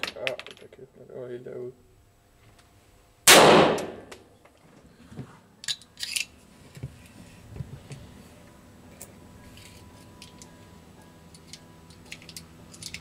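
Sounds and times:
pistol shot with echo: 0:03.3 - 0:04.1.

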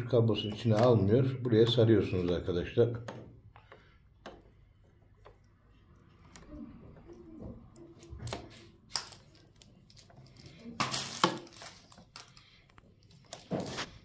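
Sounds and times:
plastic clicks and knocks: 0:00.4 - 0:10.2
cable rustling: 0:03.1 - 0:14.0.

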